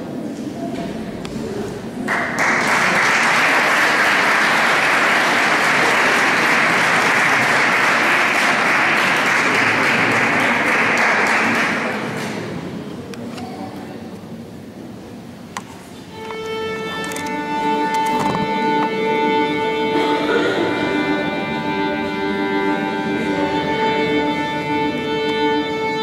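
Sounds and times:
audience applauding: 2.0s - 12.6s.

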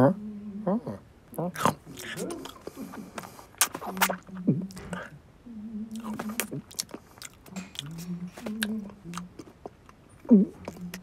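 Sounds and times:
person humming munching sounds: 0.0s - 11.0s
chewing clicks and smacks: 1.6s - 5.1s, 6.0s - 11.0s.

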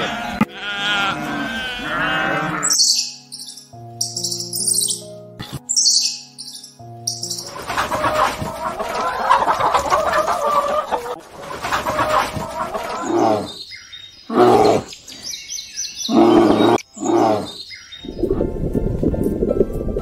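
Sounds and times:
bear roaring: 0.0s - 2.8s, 12.9s - 13.6s, 14.3s - 14.9s, 16.1s - 17.6s
hen clucking: 7.2s - 13.4s.

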